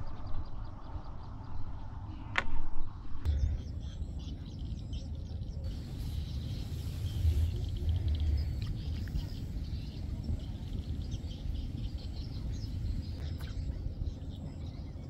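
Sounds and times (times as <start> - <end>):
faint birds chirping: 3.2 - 15.0
wind rumbling on microphone: 5.6 - 15.0.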